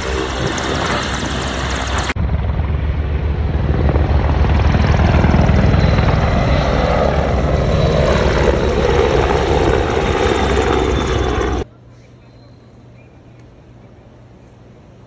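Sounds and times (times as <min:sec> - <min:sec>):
helicopter rotor beat: 0:00.0 - 0:11.7
faint turbine whine: 0:00.0 - 0:15.0.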